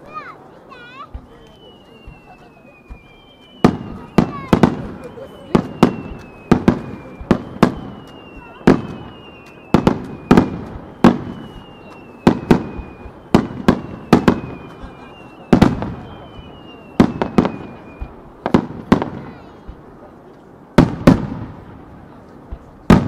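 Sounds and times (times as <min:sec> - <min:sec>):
firework whistles sliding down: 0:00.8 - 0:18.3
firework shells bursting: 0:01.2 - 0:19.9.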